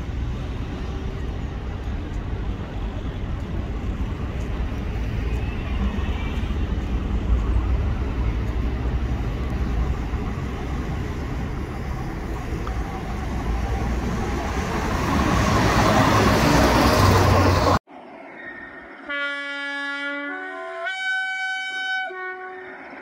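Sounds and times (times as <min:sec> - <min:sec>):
train engine and wheels rumbling: 0:00.0 - 0:23.0.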